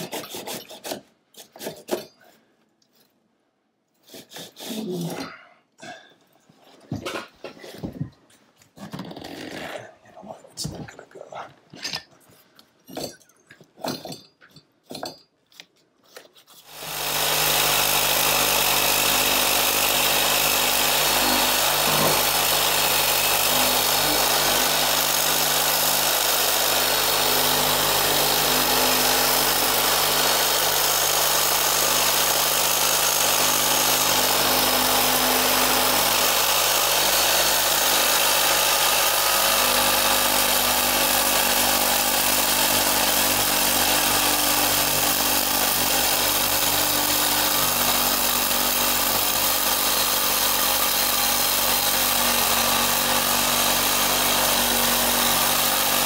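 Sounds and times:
reciprocating saw cutting pipe: 0:16.5 - 0:56.0.

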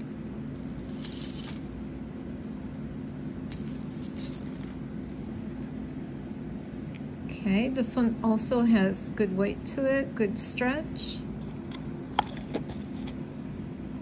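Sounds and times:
steady low hum: 0:00.0 - 0:14.0
bracelets clinking: 0:00.6 - 0:02.0, 0:03.5 - 0:04.8.

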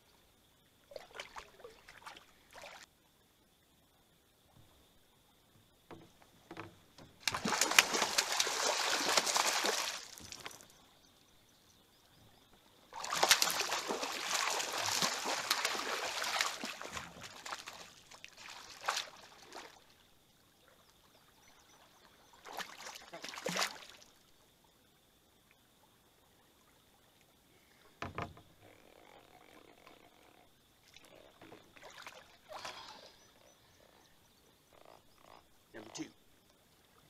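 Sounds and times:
water splashing: 0:06.5 - 0:10.8, 0:12.9 - 0:19.8, 0:22.4 - 0:24.1.

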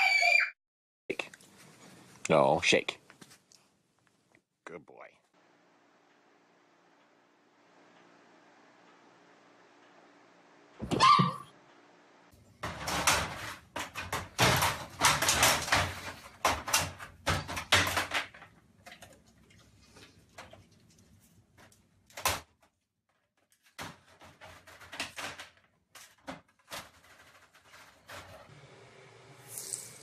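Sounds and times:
pet door flap rattling: 0:12.6 - 0:18.4.

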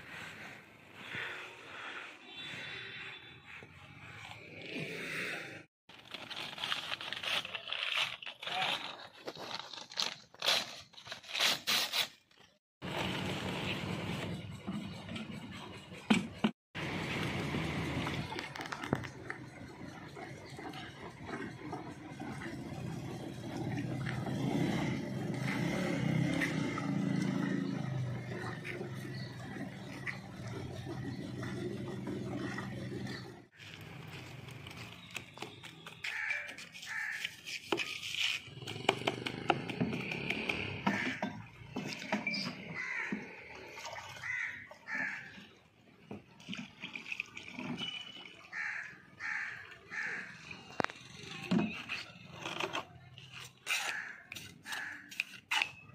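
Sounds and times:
stirring wet cement in bucket: 0:18.1 - 0:55.9
crow cawing: 0:36.1 - 0:37.2, 0:42.8 - 0:43.3, 0:44.2 - 0:45.3, 0:48.5 - 0:50.5, 0:53.9 - 0:55.1.

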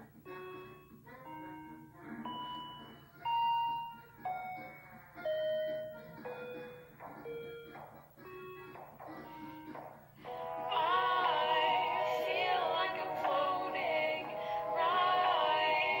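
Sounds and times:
bell-like synth melody: 0:00.3 - 0:08.7.

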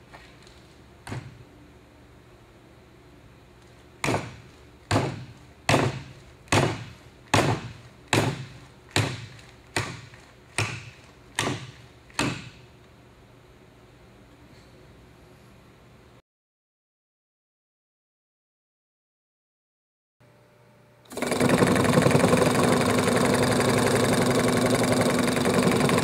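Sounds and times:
hammering nail into wood: 0:04.0 - 0:12.6.

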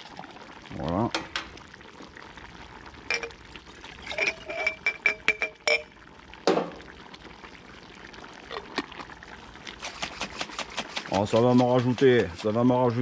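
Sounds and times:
glass jars clinking: 0:03.1 - 0:03.4, 0:04.0 - 0:05.9
sauce pouring between jars: 0:08.4 - 0:11.8.

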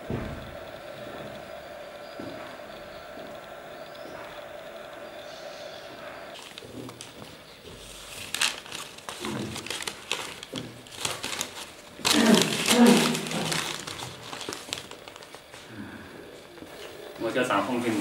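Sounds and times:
paper rustling and crinkling: 0:06.4 - 0:15.7.

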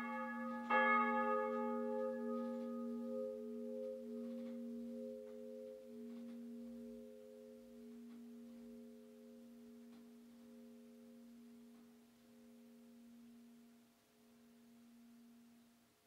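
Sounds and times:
faint bell knocks: 0:00.0 - 0:07.1
church bells humming: 0:00.0 - 0:15.5.

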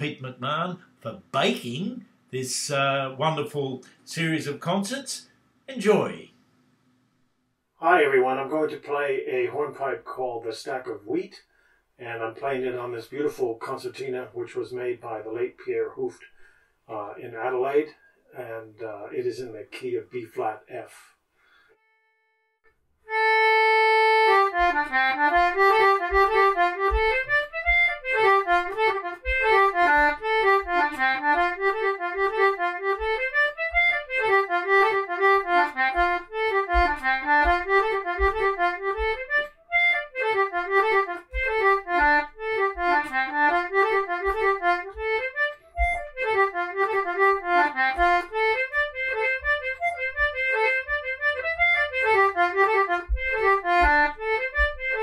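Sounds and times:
concertina playing hornpipe: 0:23.1 - 0:55.0
soft low thuds: 0:23.7 - 0:55.0.

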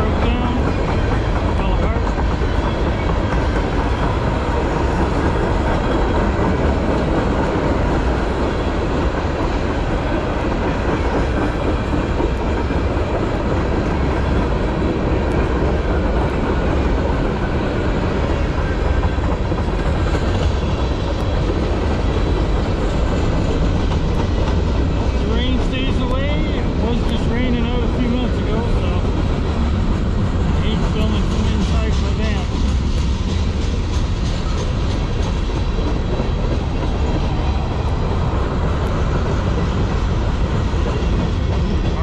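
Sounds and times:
freight train wheels on rails: 0:00.0 - 0:42.0.

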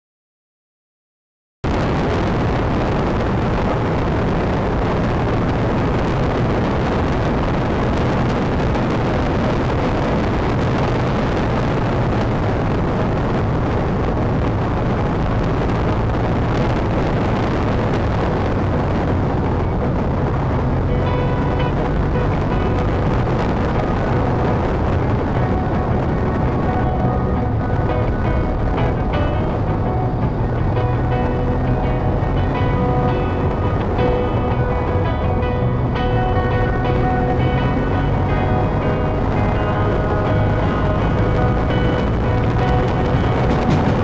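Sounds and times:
wind and road rush: 0:01.6 - 0:44.0
motorcycle engine running: 0:02.6 - 0:44.0.

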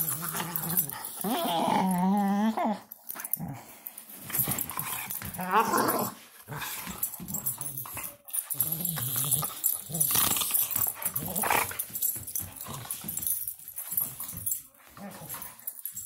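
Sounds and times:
dog grumbling while wrestling: 0:00.0 - 0:03.7, 0:04.4 - 0:07.9, 0:08.5 - 0:12.0.

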